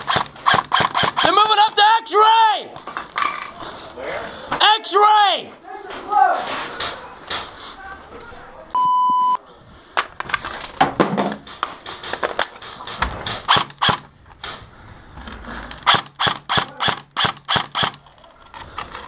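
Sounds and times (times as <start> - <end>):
airsoft rifle shots: 0.0 - 1.7, 12.8 - 14.1, 15.8 - 18.0.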